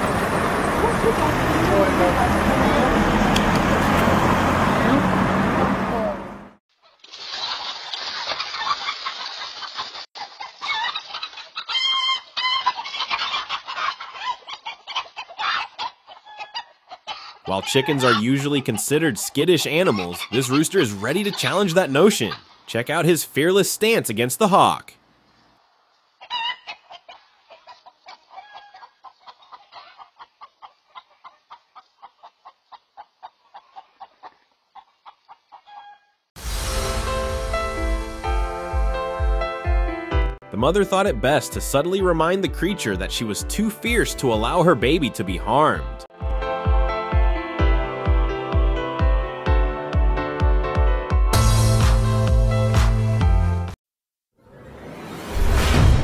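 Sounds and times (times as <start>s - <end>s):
chickens squawking and clucking: 0.0s - 22.7s, 26.0s - 36.2s.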